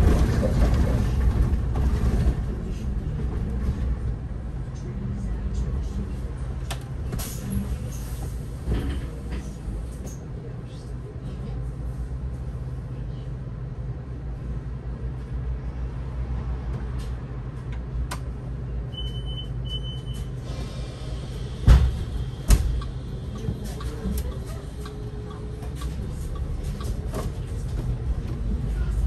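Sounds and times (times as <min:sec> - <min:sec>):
bus engine rumble: 0:00.0 - 0:29.0
bus doors thumping: 0:21.4 - 0:26.2.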